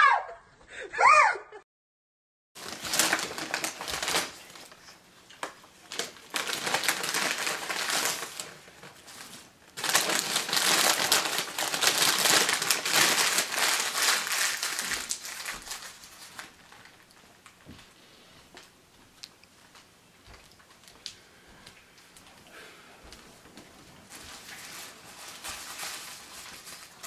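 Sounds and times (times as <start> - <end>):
paper bag and wrappers crinkling: 2.6 - 17.7, 23.8 - 27.0.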